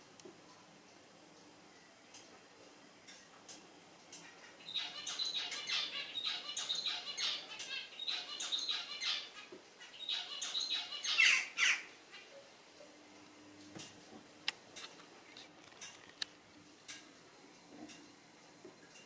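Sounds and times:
jackdaws calling: 0:04.2 - 0:12.3.

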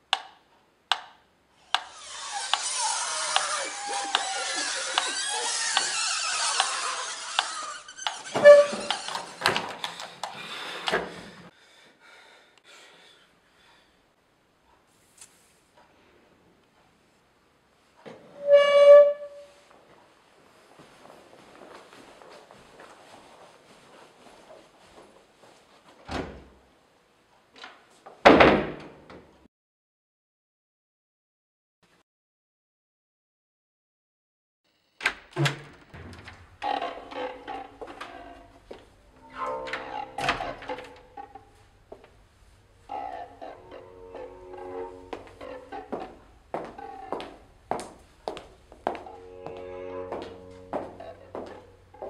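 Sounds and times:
hissing squealing background: 0:01.7 - 0:09.6, 0:36.6 - 0:41.5, 0:42.8 - 0:47.2
short squeak: 0:01.8 - 0:09.5, 0:39.1 - 0:41.0.

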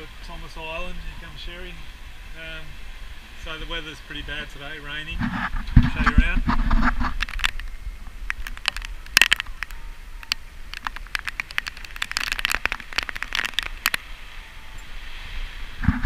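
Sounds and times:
low wind rumble: 0:00.0 - 0:16.0
rain falling: 0:00.0 - 0:16.0
raindrops tapping near microphone: 0:05.1 - 0:15.0.

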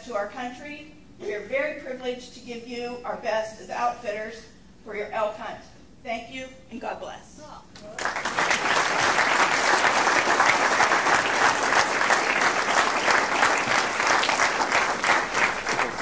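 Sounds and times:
audience applauding: 0:07.9 - 0:16.0.

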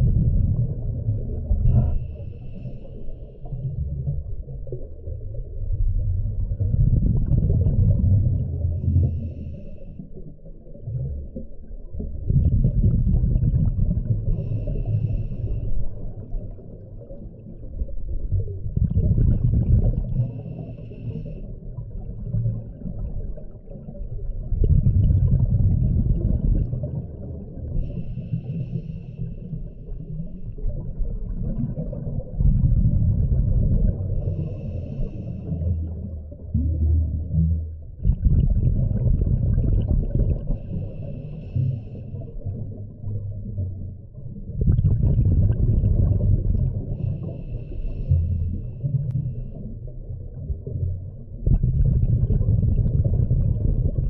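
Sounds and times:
exhaled bubbles rumbling underwater: 0:00.0 - 0:54.0.

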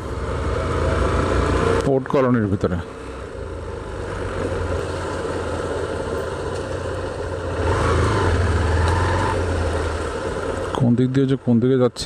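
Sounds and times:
road and wind noise: 0:00.0 - 0:12.0.

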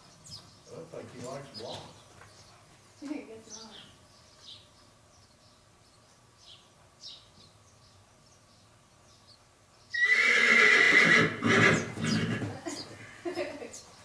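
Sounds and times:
horse whinny: 0:10.0 - 0:12.6.

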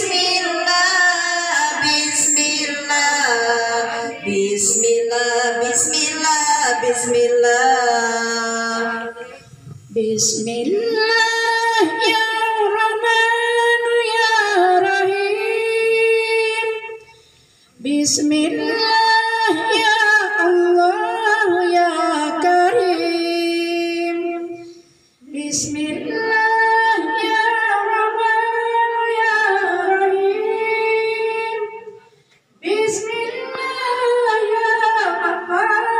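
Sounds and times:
women chanting in unison: 0:00.0 - 0:15.4, 0:32.6 - 0:35.9.

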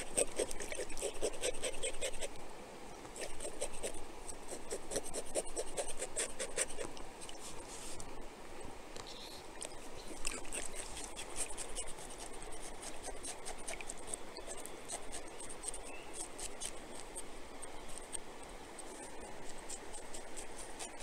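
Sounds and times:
knife scraping fish: 0:00.0 - 0:02.3, 0:03.2 - 0:06.9, 0:10.2 - 0:17.2, 0:18.8 - 0:21.0
creek running: 0:09.4 - 0:21.0.

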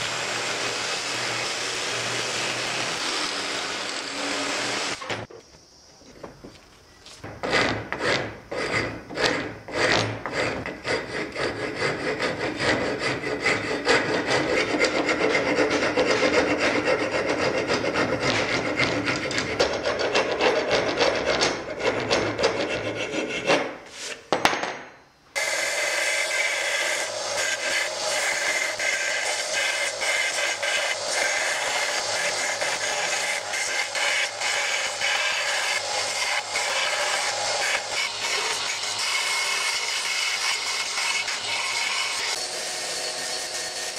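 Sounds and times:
belt grinder sanding: 0:00.0 - 0:05.0, 0:07.4 - 0:24.2, 0:25.4 - 0:43.9
hand rasp strokes on wood: 0:07.4 - 0:24.2, 0:26.0 - 0:42.4.

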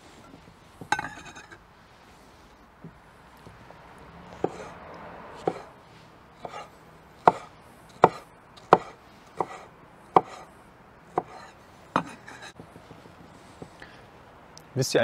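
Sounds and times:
knife chopping on cutting board: 0:04.4 - 0:04.7, 0:05.4 - 0:05.7, 0:06.4 - 0:10.5, 0:11.2 - 0:13.0.

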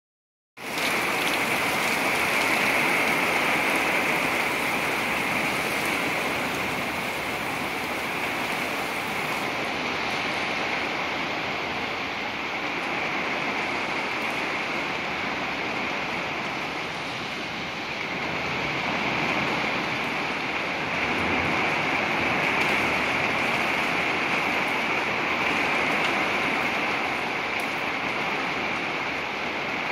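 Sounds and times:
steady rain falling: 0:00.6 - 0:29.9.

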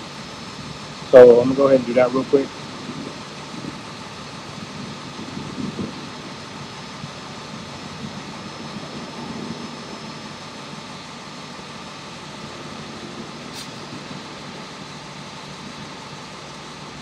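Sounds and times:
sharp hiss: 0:13.4 - 0:15.0.

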